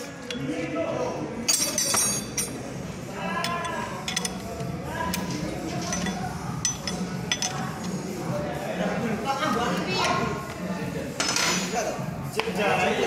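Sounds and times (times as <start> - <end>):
metal parts clinking: 3.4 - 4.4, 5.7 - 8.0.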